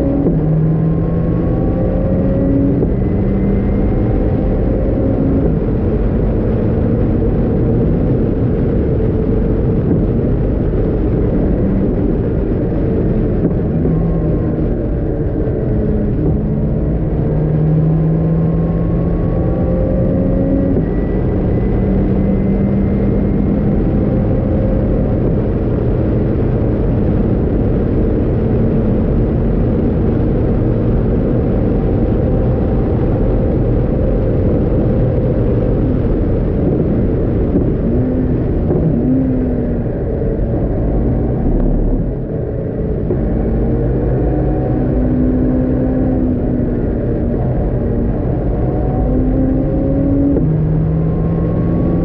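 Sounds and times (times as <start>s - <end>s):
car engine accelerating hard: 0.0s - 52.0s
road noise: 0.0s - 52.0s
wind noise: 0.0s - 52.0s.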